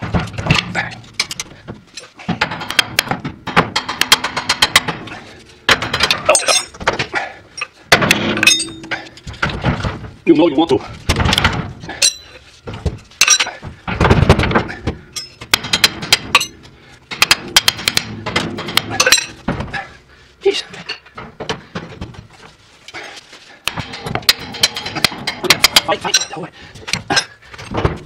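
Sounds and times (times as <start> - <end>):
wrench clinking against metal nuts: 13.2 - 13.6, 15.1 - 16.6, 18.9 - 19.4.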